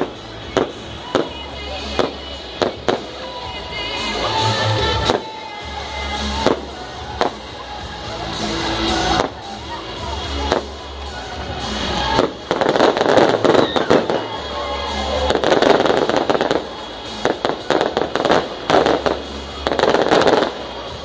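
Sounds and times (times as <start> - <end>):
fireworks bangs and crackling: 0.0 - 21.0.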